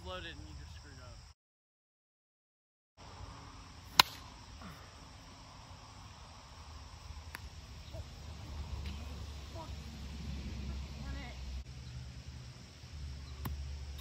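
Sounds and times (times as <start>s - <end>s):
insects chirring: 0.0s - 1.4s, 3.0s - 14.0s
plastic bat hitting ball: 3.9s - 4.3s.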